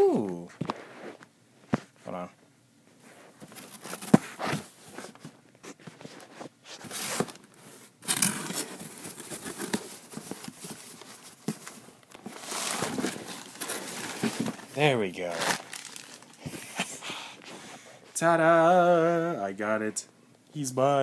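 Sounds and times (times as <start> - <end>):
packaging rustling and crinkling: 3.2 - 17.6.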